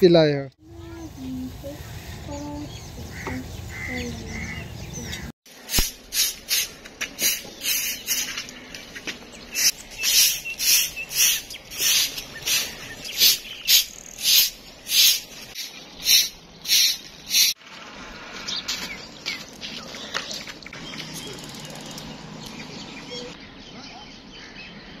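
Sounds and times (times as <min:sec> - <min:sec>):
broom sweeping concrete floor: 0:05.5 - 0:08.6, 0:09.5 - 0:17.6.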